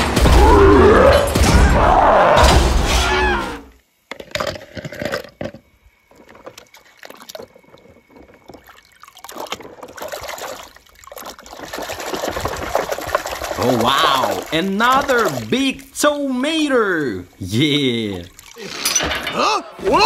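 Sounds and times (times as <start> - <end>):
water sloshing and splashing: 5.7 - 16.0, 18.0 - 19.2
cartoon soundtrack with voices: 19.3 - 20.0.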